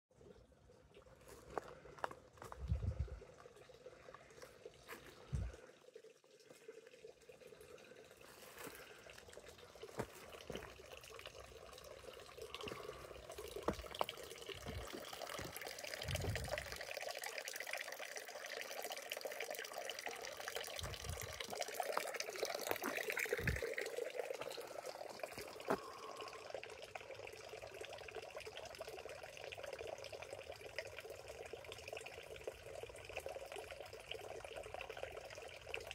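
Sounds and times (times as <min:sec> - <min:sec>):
water trickling into fountain trough: 0:00.1 - 0:35.9
dull low thumps: 0:02.5 - 0:03.2, 0:14.6 - 0:16.7, 0:20.8 - 0:21.4.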